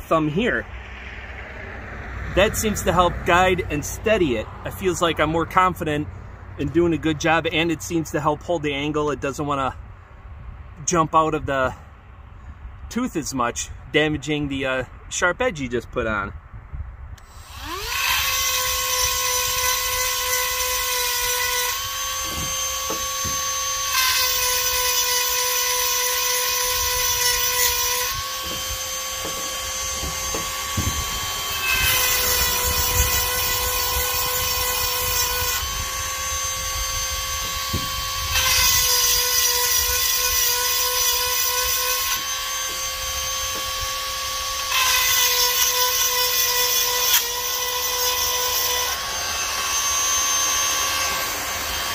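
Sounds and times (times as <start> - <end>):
rotary tool grinding with high whine: 17.2 - 51.9.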